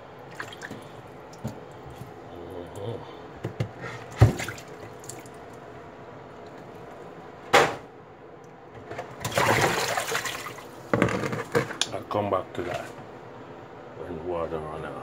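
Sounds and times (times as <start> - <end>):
water splashing in metal sink: 0.3 - 1.6, 4.1 - 5.4, 9.2 - 10.6.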